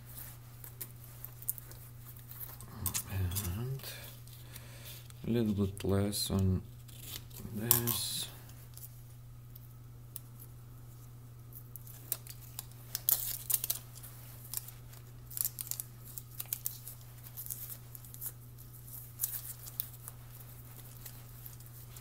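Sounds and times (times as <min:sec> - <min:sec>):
foil tape crinkling: 0:00.0 - 0:05.9, 0:06.6 - 0:22.0
steady low hum: 0:00.0 - 0:22.0.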